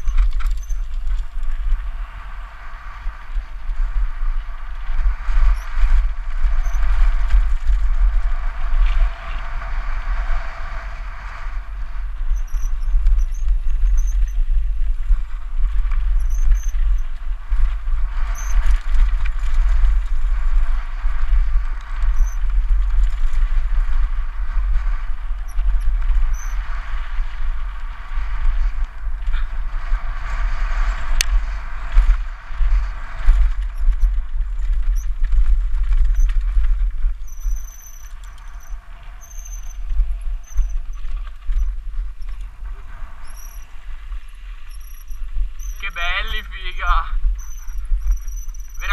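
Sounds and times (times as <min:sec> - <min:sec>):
short high squeaks: 0:00.0 - 0:01.0, 0:06.6 - 0:06.9, 0:12.3 - 0:14.4, 0:16.2 - 0:17.1, 0:18.3 - 0:18.7, 0:22.2 - 0:22.4, 0:26.3 - 0:26.6, 0:37.2 - 0:42.4, 0:43.0 - 0:48.9
wind buffeting microphone: 0:00.0 - 0:48.9.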